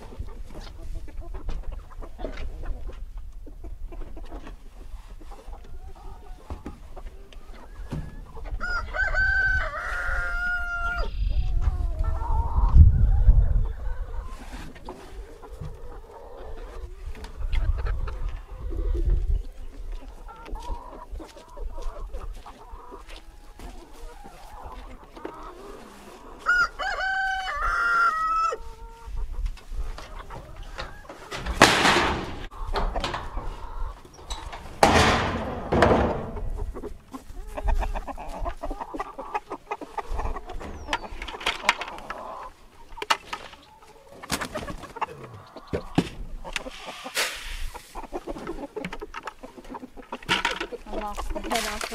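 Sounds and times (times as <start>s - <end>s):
chickens clucking: 0.0s - 51.9s
rooster crowing: 8.6s - 11.0s, 26.4s - 28.6s.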